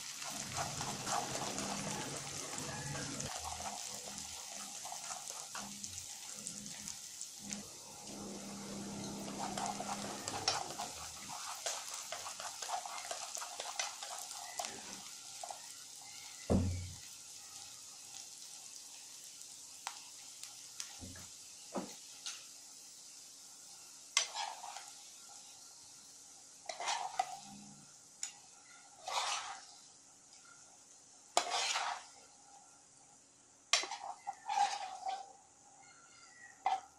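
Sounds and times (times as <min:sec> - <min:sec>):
corn sizzling in oil: 0:00.0 - 0:36.9
chopsticks scraping a pan: 0:00.2 - 0:05.8, 0:08.2 - 0:15.1, 0:24.2 - 0:24.9, 0:26.6 - 0:27.5, 0:28.2 - 0:29.8, 0:31.4 - 0:32.1, 0:33.8 - 0:35.3
knock on a pan: 0:16.5 - 0:16.9.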